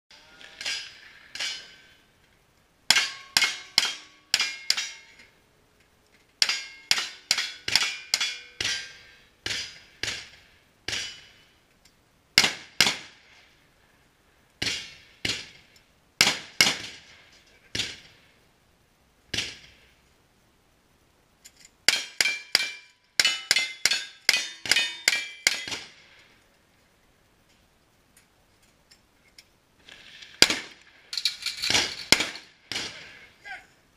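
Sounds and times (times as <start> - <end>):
steel targets ringing: 2.9 - 5.3, 6.4 - 9.8, 21.9 - 25.8.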